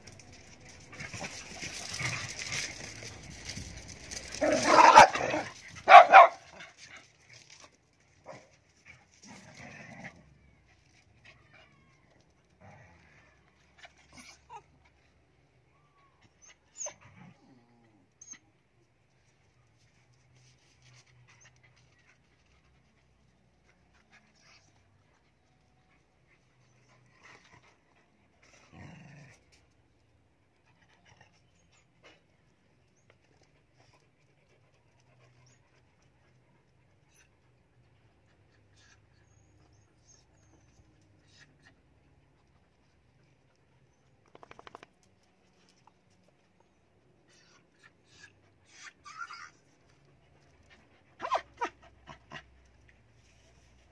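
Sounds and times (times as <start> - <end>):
small dogs panting: 44.5 - 53.9.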